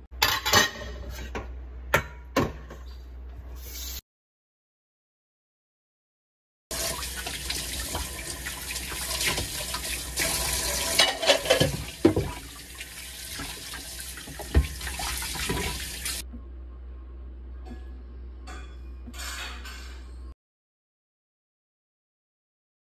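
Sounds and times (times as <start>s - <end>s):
tap running into a sink: 6.8s - 12.5s, 13.3s - 16.2s.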